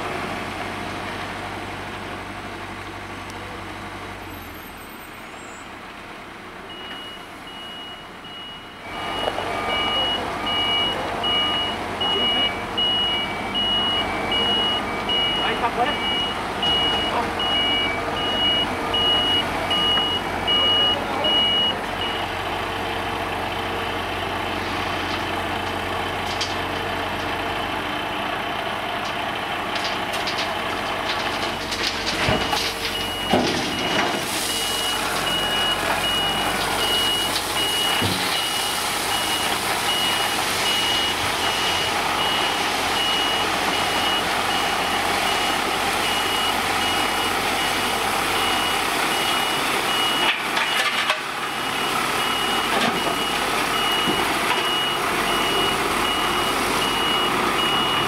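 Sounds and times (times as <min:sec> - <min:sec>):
diesel trucks and excavator running: 0:00.0 - 0:58.0
reversing alarm beeping: 0:06.7 - 0:22.4, 0:32.3 - 0:58.0
crushed stone pouring: 0:29.7 - 0:33.2, 0:34.2 - 0:40.6.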